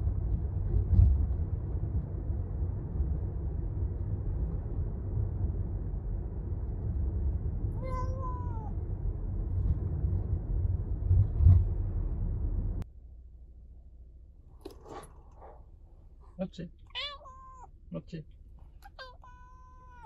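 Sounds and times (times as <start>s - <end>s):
car cabin rumble: 3.2s - 12.8s
cat meowing: 7.8s - 8.8s, 16.9s - 17.7s, 18.8s - 20.0s.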